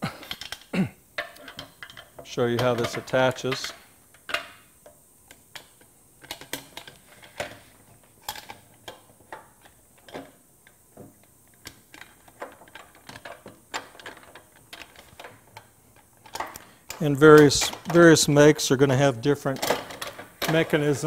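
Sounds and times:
metal parts clicking and knocking: 0.3s - 4.6s, 8.2s - 10.4s, 11.5s - 18.3s, 19.4s - 21.0s.

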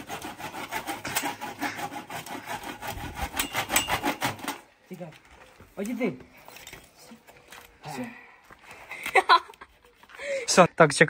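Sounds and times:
hand saw sawing through tyre: 0.0s - 4.7s.

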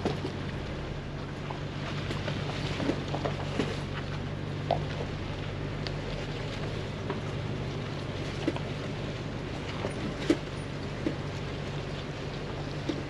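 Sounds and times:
engine low drone: 0.0s - 13.0s
knocks and clicks over ruts: 0.0s - 13.0s.

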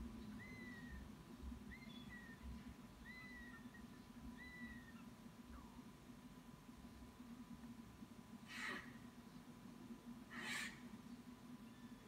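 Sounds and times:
faint steady hum: 0.0s - 12.0s
young hawks mewing calls: 0.3s - 5.8s, 8.4s - 9.2s, 10.2s - 11.1s.

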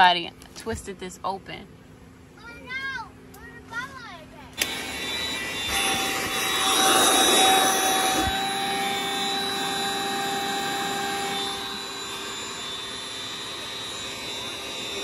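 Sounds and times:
electric air pump humming: 4.6s - 15.0s.

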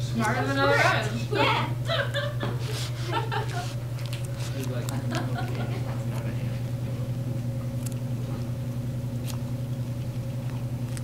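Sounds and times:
guinea pigs chewing: 0.0s - 1.2s, 2.5s - 11.0s
steady low hum: 0.0s - 11.0s
crunching bites: 3.7s - 6.4s, 7.7s - 11.0s.

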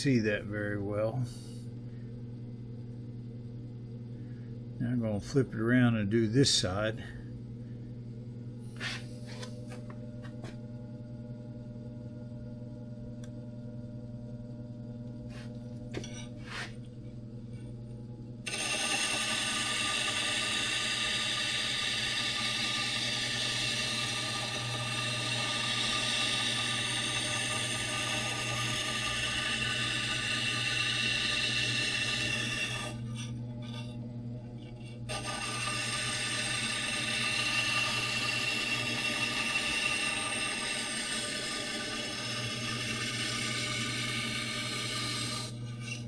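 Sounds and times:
grinder motor hum: 13.1s - 46.0s
blade grinding on wheel: 18.5s - 33.8s, 34.6s - 46.0s.

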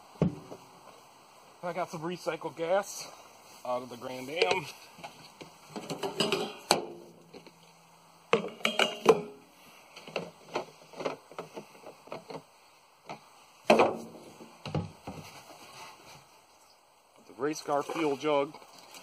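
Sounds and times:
fuel jug clunks and knocks: 13.1s - 15.2s.

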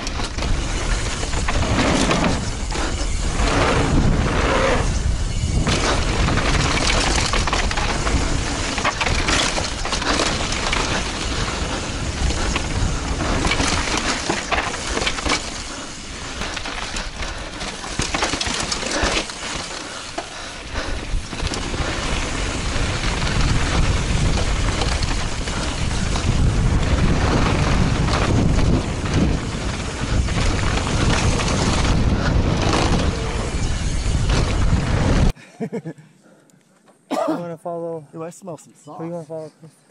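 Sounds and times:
wind rushing on microphone: 0.0s - 15.3s, 20.6s - 35.4s
bike clattering over bumps: 0.0s - 35.3s
bike tyres crunching on dirt: 0.0s - 35.3s.

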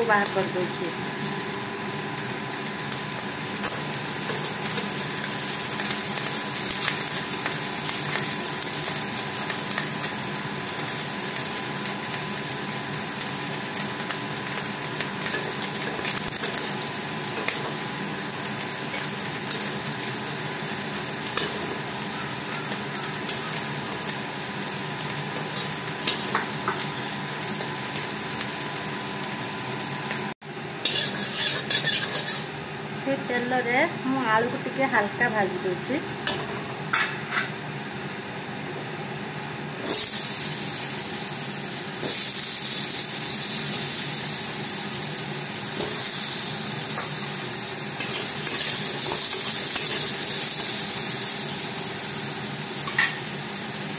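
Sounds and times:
prawns sizzling in hot oil: 0.0s - 32.6s, 39.8s - 53.9s
metal spatula scraping pan: 30.8s - 32.5s.

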